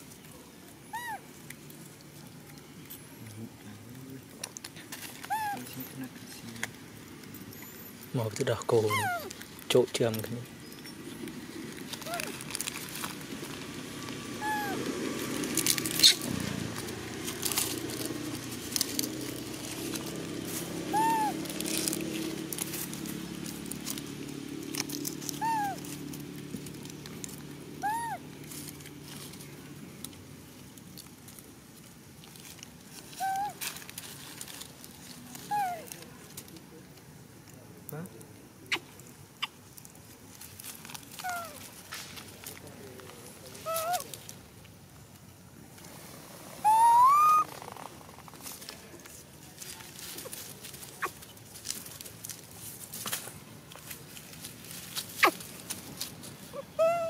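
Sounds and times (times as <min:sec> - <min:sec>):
rustling in dry leaves: 0:00.0 - 0:57.0
monkey coo calls: 0:00.9 - 0:01.3, 0:05.2 - 0:05.8, 0:08.8 - 0:09.3, 0:12.0 - 0:12.4, 0:14.2 - 0:15.0, 0:15.9 - 0:16.4, 0:20.8 - 0:21.6, 0:25.3 - 0:25.9, 0:27.8 - 0:28.3, 0:33.2 - 0:33.6, 0:35.5 - 0:35.9, 0:38.7 - 0:39.6, 0:41.2 - 0:41.6, 0:43.6 - 0:44.1, 0:46.6 - 0:47.6, 0:55.2 - 0:55.4, 0:56.5 - 0:57.0
monkey call rising in pitch: 0:08.8 - 0:09.3, 0:14.4 - 0:14.9, 0:20.9 - 0:21.5, 0:25.4 - 0:25.8, 0:27.8 - 0:28.2, 0:33.2 - 0:33.6, 0:43.6 - 0:44.1, 0:46.6 - 0:47.5, 0:56.5 - 0:57.0.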